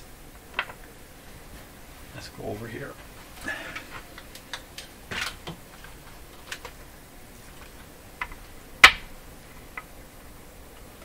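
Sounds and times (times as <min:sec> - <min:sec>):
small parts clicking on wood: 0:03.7 - 0:06.8, 0:07.5 - 0:09.0.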